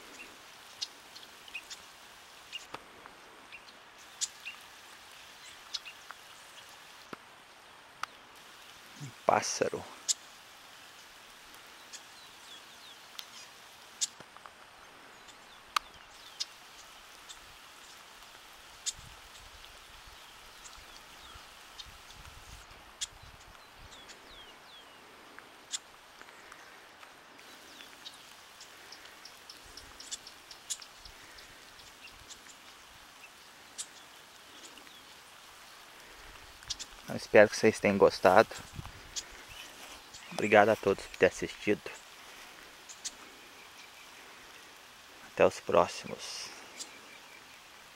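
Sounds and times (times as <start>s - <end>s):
light rain pattering: 0.0s - 47.9s
raindrops ticking close by: 0.0s - 47.9s
faint bird chirps: 22.9s - 42.2s.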